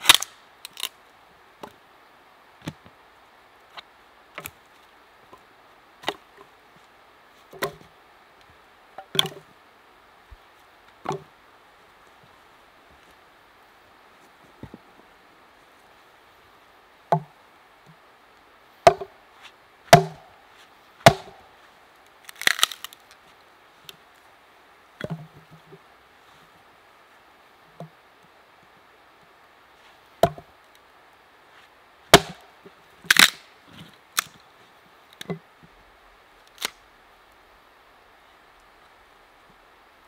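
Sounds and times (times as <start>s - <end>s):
wood splitting crackle: 0.0s - 1.0s, 18.8s - 19.1s, 19.9s - 21.4s, 22.0s - 23.2s, 32.1s - 32.5s, 33.1s - 34.4s, 36.4s - 36.8s
axe chopping wood: 18.8s - 19.1s, 19.9s - 20.4s, 21.0s - 21.4s, 32.1s - 32.4s.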